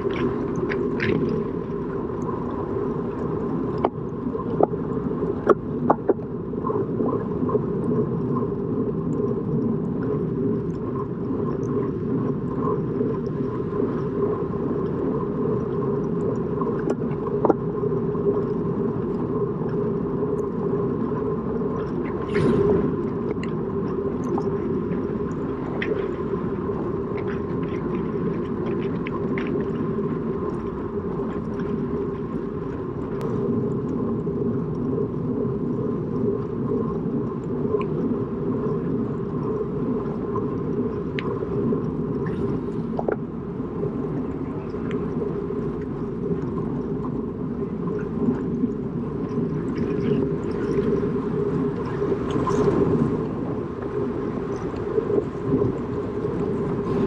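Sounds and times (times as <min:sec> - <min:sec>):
faint whine: 0:00.0 - 0:57.0
wind and road rumble: 0:21.8 - 0:38.3.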